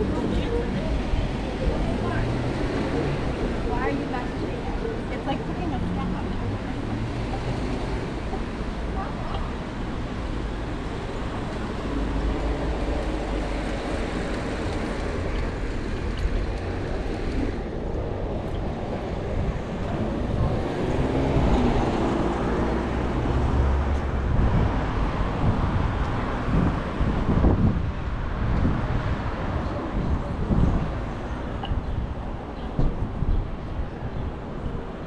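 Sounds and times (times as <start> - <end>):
road traffic passing: 0.0 - 35.0.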